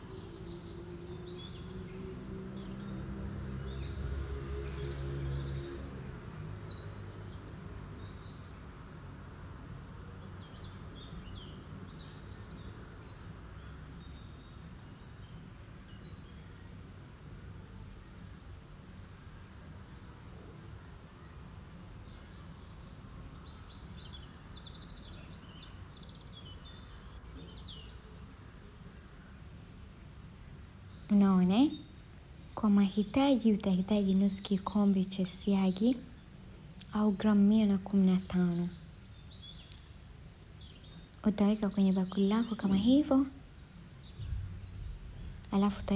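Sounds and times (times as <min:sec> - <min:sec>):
small birds chirping: 0:00.0 - 0:45.9
low background rumble: 0:28.5 - 0:45.9.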